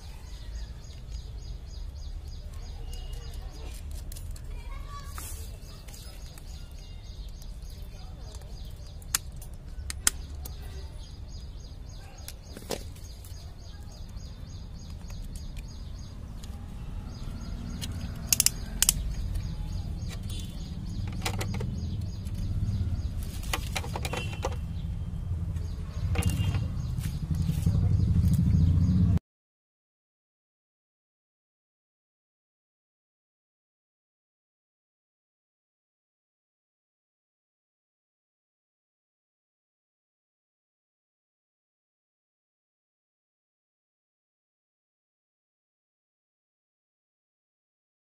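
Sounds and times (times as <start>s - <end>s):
plastic parts clicking and rattling: 17.8s - 22.4s, 23.3s - 24.6s, 26.1s - 26.6s.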